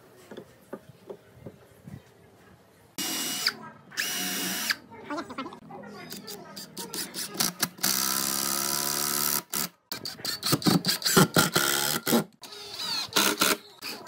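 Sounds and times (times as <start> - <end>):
cordless drill driving a screw: 3.0 - 4.8, 11.0 - 14.0.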